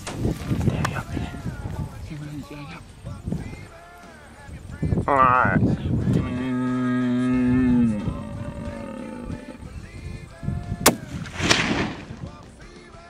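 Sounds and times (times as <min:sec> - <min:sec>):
stag roaring: 0:06.1 - 0:09.6
rifle shots: 0:10.9 - 0:12.4.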